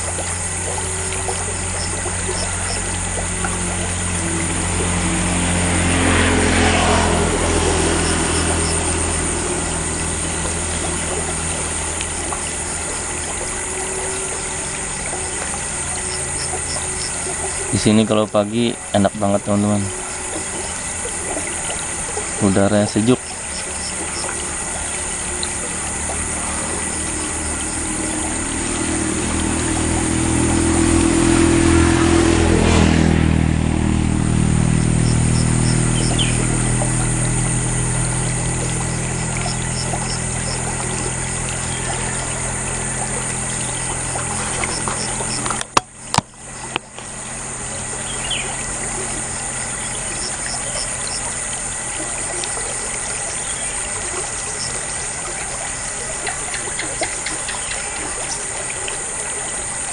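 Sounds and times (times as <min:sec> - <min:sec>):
running water hiss: 0:00.0 - 0:59.9
vehicle passing: 0:00.0 - 0:59.9
bird chirps: 0:01.4 - 0:03.2, 0:34.8 - 0:36.7, 0:48.0 - 0:48.6.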